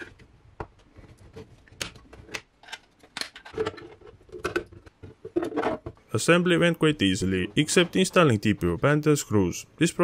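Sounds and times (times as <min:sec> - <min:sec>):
plastic parts clicking: 0:00.8 - 0:06.0.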